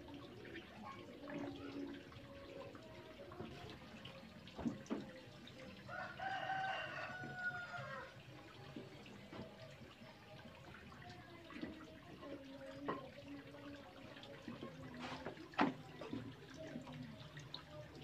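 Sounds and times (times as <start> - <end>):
liquid dripping and splashing: 0.0 - 18.0
rooster crowing: 5.9 - 8.1.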